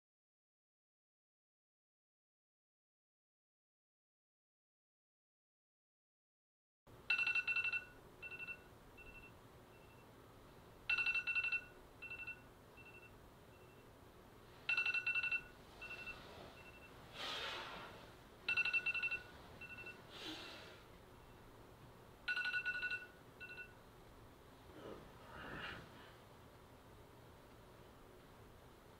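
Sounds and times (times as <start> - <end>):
telephone ringing: 7.1 - 10.0, 10.9 - 13.9, 14.7 - 17.0, 18.4 - 20.1, 22.2 - 23.8.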